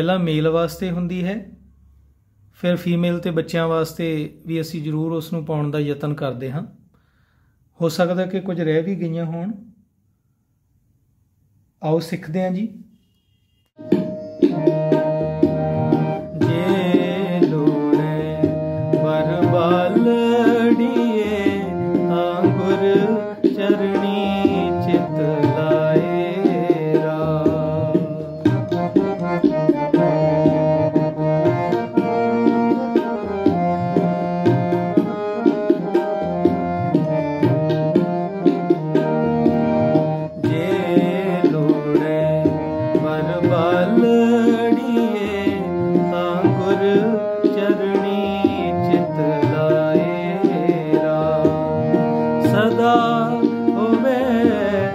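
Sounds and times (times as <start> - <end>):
harmonium melody: 12.9 - 54.9
tabla drum strokes: 13.8 - 24.0.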